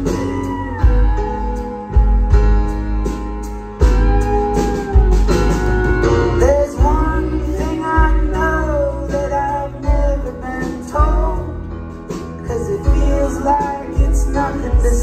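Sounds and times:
person singing: 0.0s - 3.2s, 3.8s - 11.8s, 12.4s - 15.0s
live rock band: 0.0s - 15.0s.

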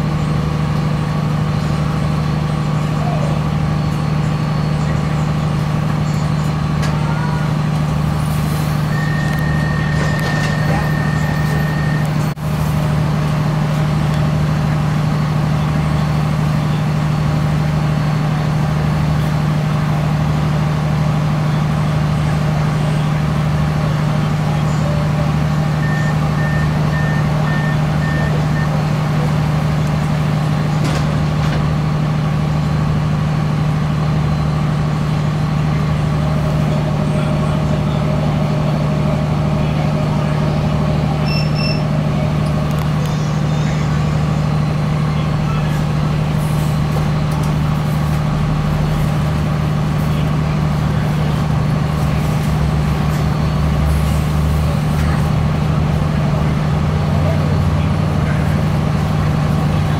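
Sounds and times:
train engine idle hum: 0.0s - 59.9s
high beeps: 8.9s - 12.2s, 41.2s - 41.9s.

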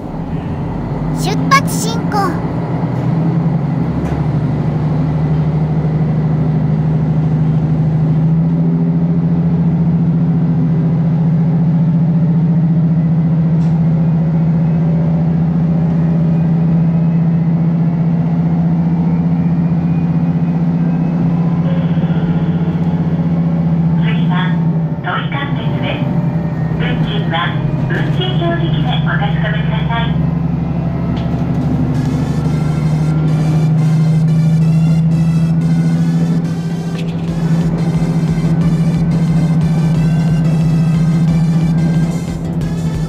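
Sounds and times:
diesel railcar engine running: 0.0s - 1.2s, 2.4s - 43.0s.

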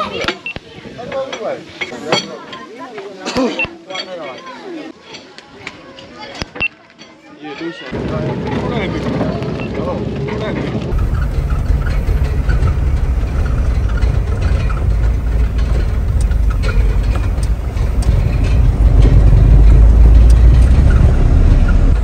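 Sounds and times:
vehicle engine and road rumble: 7.9s - 22.0s.

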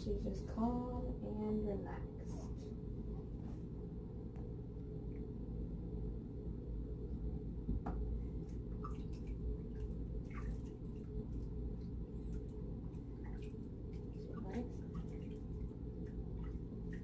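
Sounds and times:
low steady hum: 0.0s - 17.0s
bathwater lapping and splashing: 8.3s - 17.0s.

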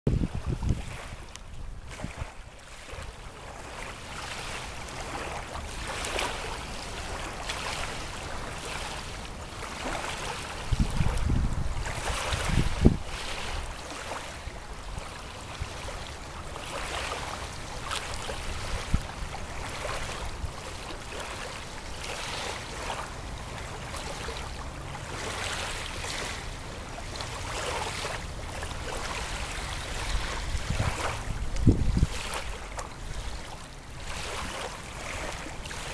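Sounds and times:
wind buffeting microphone: 0.1s - 2.5s, 10.5s - 13.8s, 18.2s - 20.6s, 27.9s - 33.4s
waves lapping on sandy beach: 0.1s - 35.9s.

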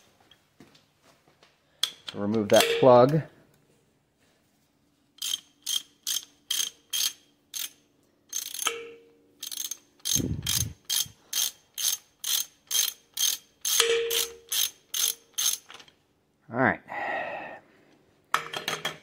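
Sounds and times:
hand ratchet clicking: 5.2s - 15.9s.

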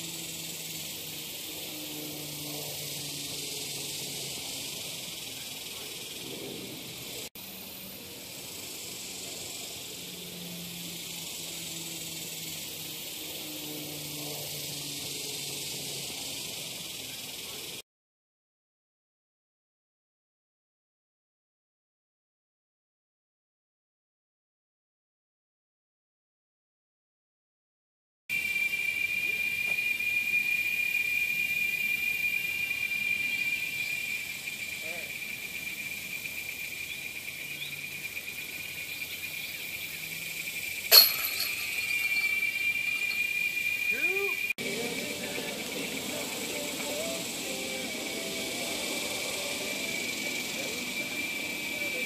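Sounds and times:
high outdoor hiss: 0.0s - 17.8s, 28.3s - 52.0s
insects droning: 0.0s - 17.8s, 28.3s - 52.0s.

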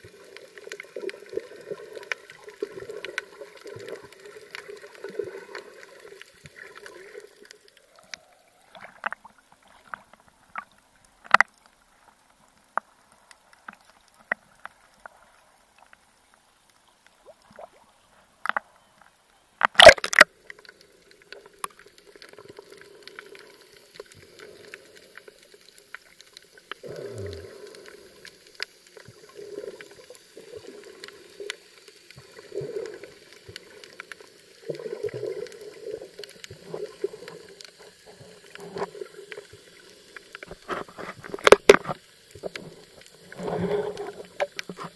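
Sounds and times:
sharp clicks and pops: 0.4s - 11.8s, 18.4s - 44.9s
muffled underwater sound: 26.8s - 28.0s.

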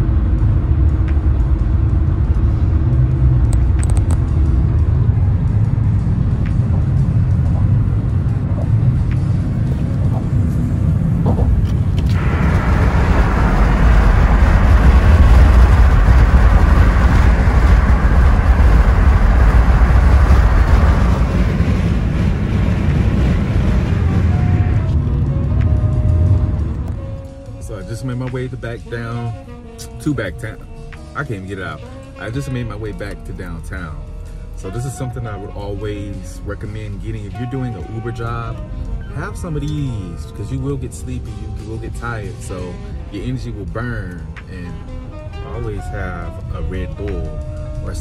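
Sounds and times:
wind and tyre rush: 0.0s - 29.6s
car engine and tyre rumble: 0.0s - 48.0s.

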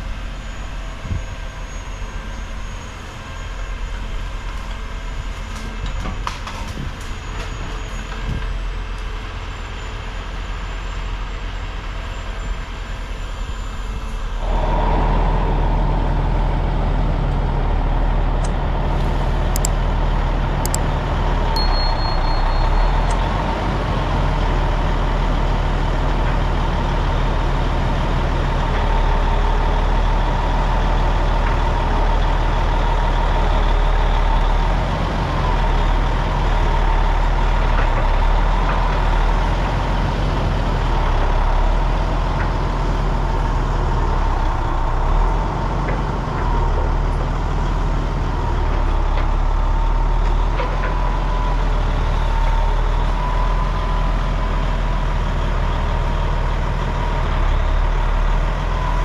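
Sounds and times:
truck engine humming: 0.0s - 59.0s
thin high whine: 21.6s - 23.2s.

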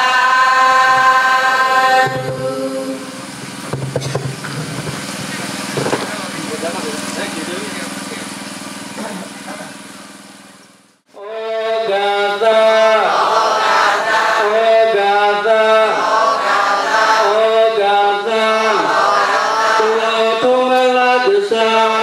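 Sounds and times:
melodic chant: 0.0s - 3.6s, 11.1s - 22.0s
steady hum: 0.0s - 22.0s.

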